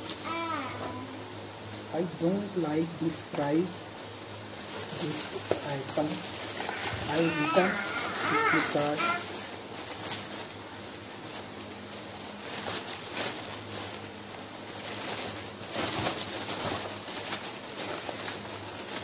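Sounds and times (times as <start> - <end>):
plastic wrapping crinkling: 0.0 - 1.0, 3.1 - 19.0.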